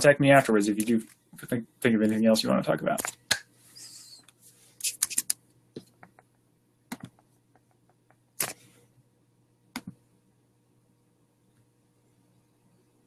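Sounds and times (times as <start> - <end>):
faint low hum: 0.0 - 13.0
computer clicks and taps: 6.9 - 8.6, 9.7 - 10.0.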